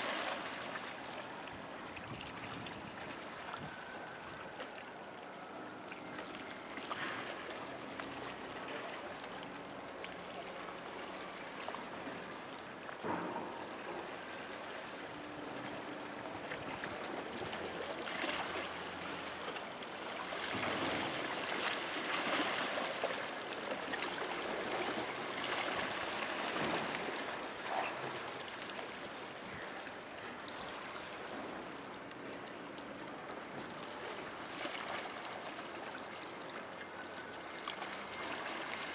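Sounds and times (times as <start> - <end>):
water lapping against rocks: 12.9 - 31.5.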